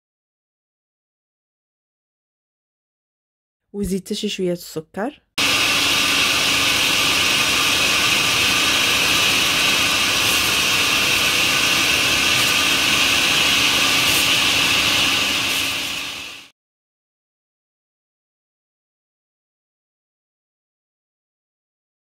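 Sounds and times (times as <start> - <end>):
blender motor running: 5.4 - 16.5.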